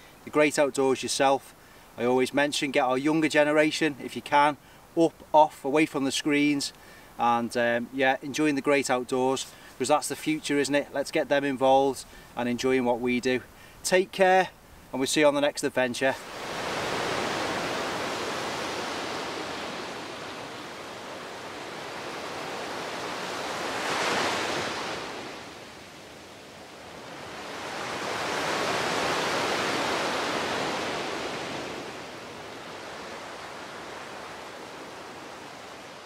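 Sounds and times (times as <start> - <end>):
sea waves washing onto shore: 16.1 - 36.0.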